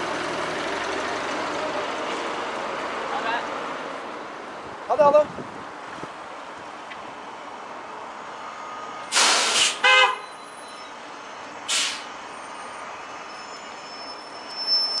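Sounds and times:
bus air brake hiss: 0:09.1 - 0:10.0, 0:11.7 - 0:12.1
bus horn toot: 0:09.2 - 0:10.3.

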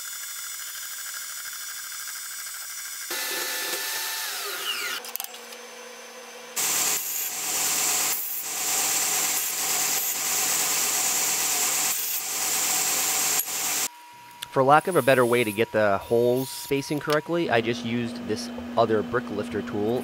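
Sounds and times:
belt grinder grinding steel: 0:00.0 - 0:13.9
band saw whining: 0:02.6 - 0:20.0.

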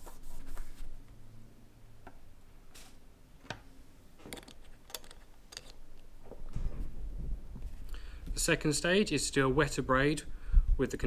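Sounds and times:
tissue rubbing on metal: 0:00.0 - 0:00.9.

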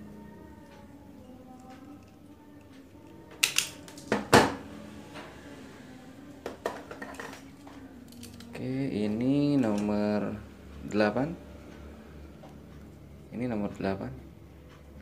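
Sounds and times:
wire stripper snapping: 0:03.3 - 0:04.3.

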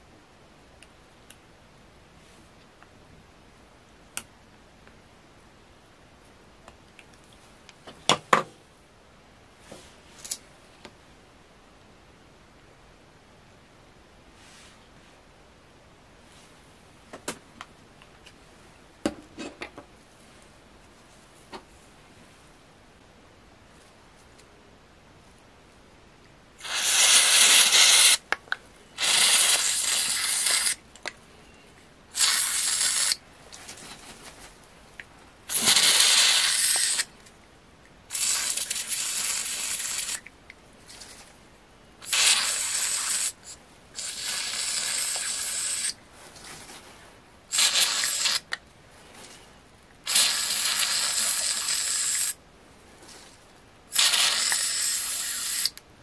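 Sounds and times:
aerosol spray can hissing: 0:26.6 - 0:28.2, 0:29.0 - 0:30.8, 0:32.2 - 0:33.2, 0:35.5 - 0:37.1, 0:38.1 - 0:40.2, 0:42.0 - 0:46.0, 0:47.5 - 0:48.5, 0:50.1 - 0:52.4, 0:53.9 - 0:55.8.

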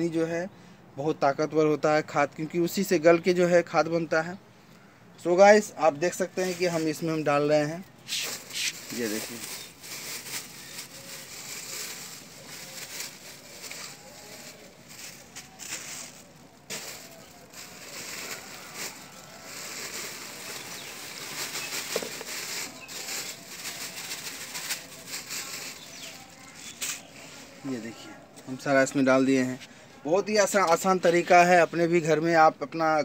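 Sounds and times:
plastic bag rustling and crinkling: 0:06.1 - 0:28.2.

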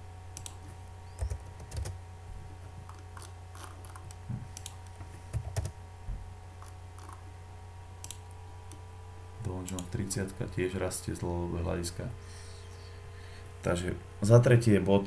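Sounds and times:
steady low hum: 0:00.0 - 0:15.0
keyboard typing: 0:01.2 - 0:02.0, 0:02.9 - 0:05.8.

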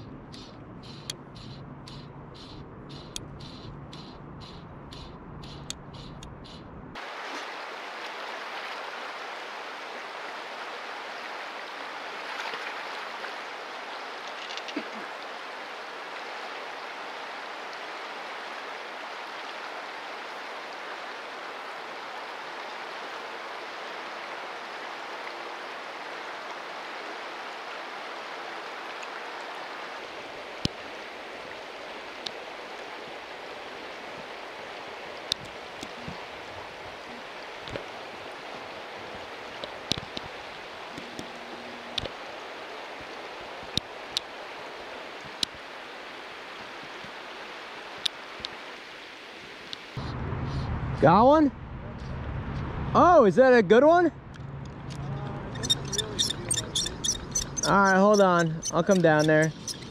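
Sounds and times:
sharp clicks: 0:00.3 - 0:06.7, 0:54.9 - 0:59.9
water rushing over rocks: 0:07.0 - 0:50.0, 0:57.6 - 0:59.9.

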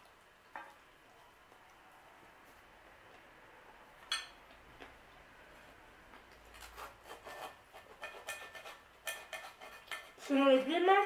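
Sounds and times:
knife sawing pizza on plate: 0:06.6 - 0:10.3.

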